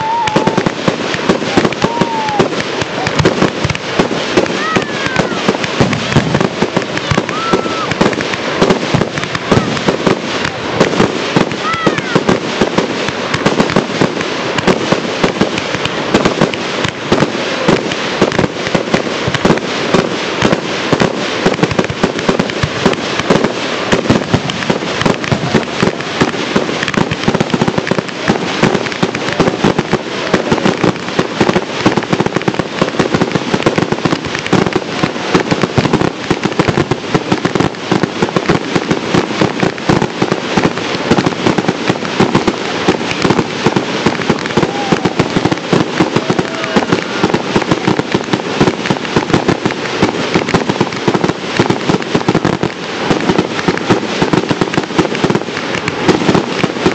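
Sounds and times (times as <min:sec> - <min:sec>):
fireworks shell bursts: 0:00.0 - 0:56.9.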